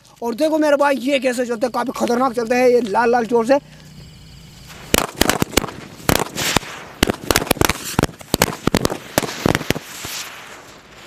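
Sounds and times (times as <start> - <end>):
crackling hiss: 0.0 - 11.0
firecrackers banging: 4.0 - 11.0.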